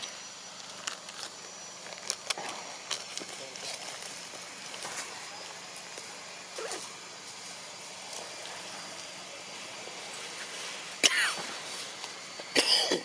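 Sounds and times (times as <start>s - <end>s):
outdoor background hiss: 0.0s - 13.0s.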